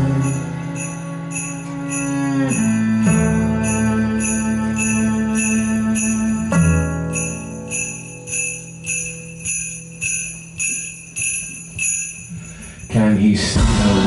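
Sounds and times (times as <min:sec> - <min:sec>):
sleigh bells shaken: 0:00.0 - 0:13.5.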